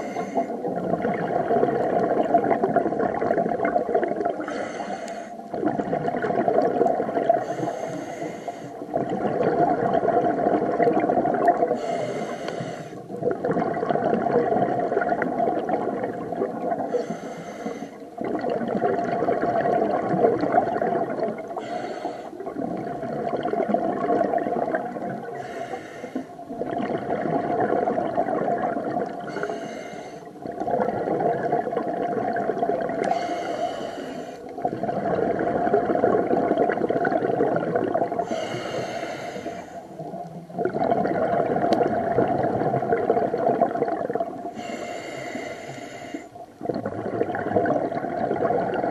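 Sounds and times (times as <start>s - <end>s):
regulator hissing inhale: 0.0s - 0.6s, 4.4s - 5.4s, 7.4s - 8.8s, 11.7s - 13.0s, 16.9s - 18.1s, 21.6s - 22.4s, 25.4s - 26.4s, 29.3s - 30.4s, 33.0s - 34.5s, 38.2s - 40.0s, 44.5s - 46.4s
exhaled bubbles rushing: 0.0s - 4.7s, 5.4s - 7.7s, 8.8s - 12.0s, 13.0s - 17.0s, 18.0s - 25.6s, 26.2s - 45.5s, 46.4s - 48.9s.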